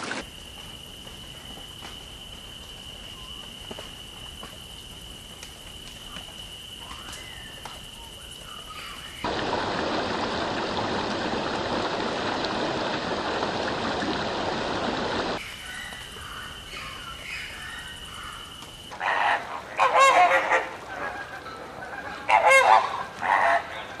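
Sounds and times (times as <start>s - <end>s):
large waterbirds honking: 19.0s - 24.0s.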